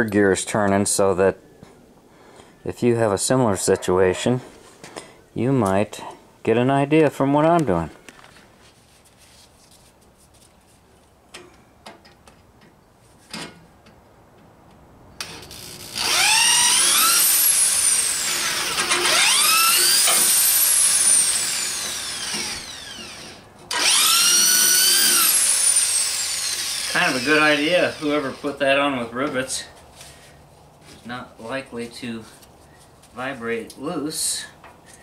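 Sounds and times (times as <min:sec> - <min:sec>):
electric drill whining: 0:15.2 - 0:28.4.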